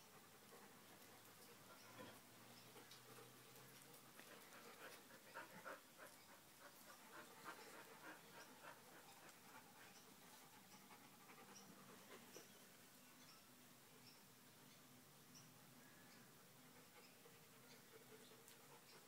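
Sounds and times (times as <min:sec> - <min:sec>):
dog panting: 0:00.0 - 0:12.6.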